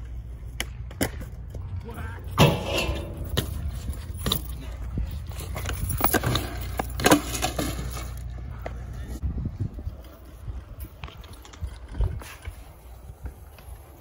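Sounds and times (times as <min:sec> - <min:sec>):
bike clattering on concrete: 0:00.6 - 0:08.8
low steady rumble: 0:01.5 - 0:05.3.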